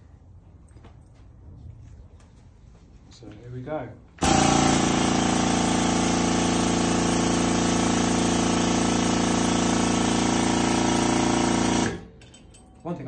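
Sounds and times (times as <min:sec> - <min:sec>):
hydraulic pump droning: 0:04.2 - 0:12.1.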